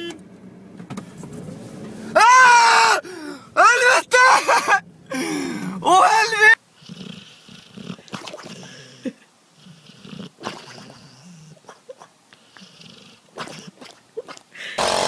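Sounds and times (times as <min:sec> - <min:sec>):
dog snoring: 0:06.8 - 0:08.9, 0:09.6 - 0:11.6, 0:12.5 - 0:13.7.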